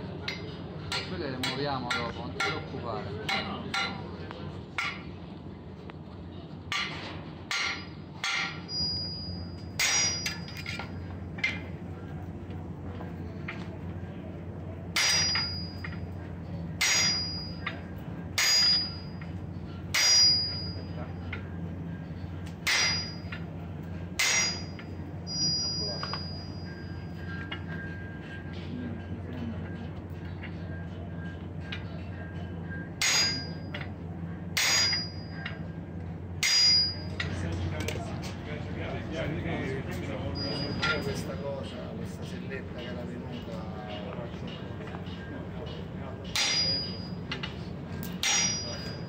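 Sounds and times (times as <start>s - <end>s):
steady low hum: 0.0s - 49.0s
hammer strikes ringing metal: 0.3s - 4.1s, 4.8s - 5.1s, 6.7s - 11.7s, 14.9s - 16.1s, 16.8s - 21.5s, 22.1s - 28.6s, 31.6s - 35.7s, 36.4s - 37.3s, 45.1s - 49.0s.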